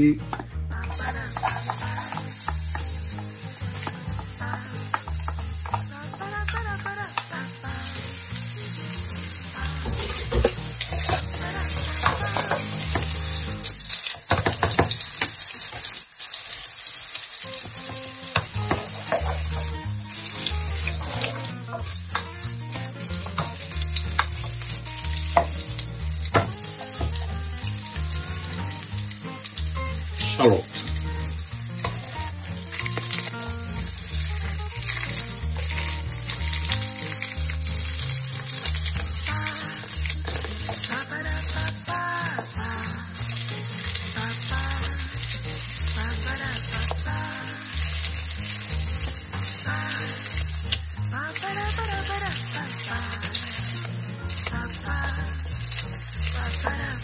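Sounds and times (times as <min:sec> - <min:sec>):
spoon scraping and clinking pot: 0:00.3 - 0:06.2, 0:09.9 - 0:15.8, 0:18.4 - 0:22.4
garlic sizzling in oil: 0:00.9 - 0:57.0.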